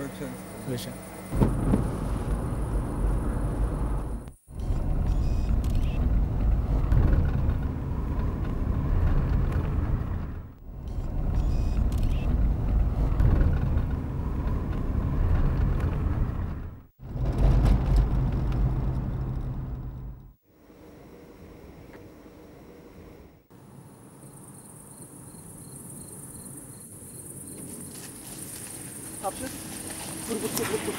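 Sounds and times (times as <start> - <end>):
car interior engine rumble: 1.3 - 20.4.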